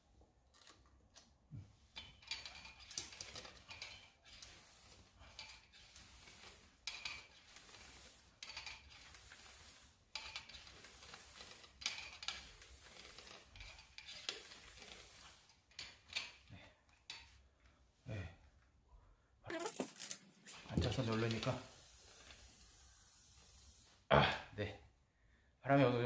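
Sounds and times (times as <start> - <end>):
bicycle pump strokes: 2.0 - 16.4, 19.5 - 24.1.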